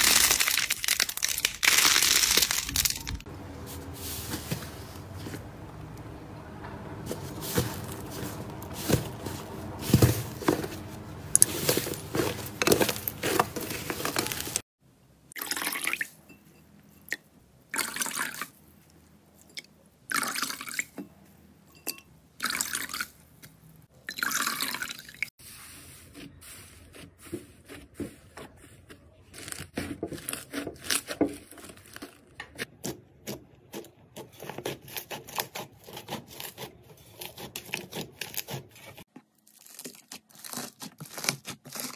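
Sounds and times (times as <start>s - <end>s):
slime crackling and popping: 0.0s - 3.3s
wet slime squelching: 7.1s - 14.6s.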